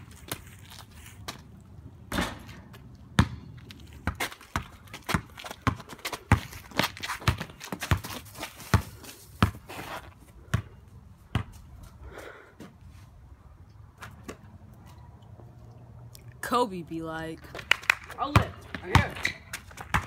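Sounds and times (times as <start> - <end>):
basketball bouncing on concrete: 2.1 - 11.6, 17.5 - 20.0
sneakers scuffing on pavement: 4.0 - 10.7.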